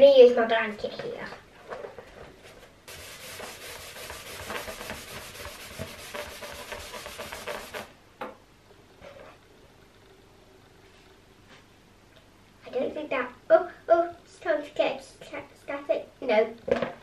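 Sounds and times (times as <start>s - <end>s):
balloon rubbing on blanket: 2.9s - 7.9s.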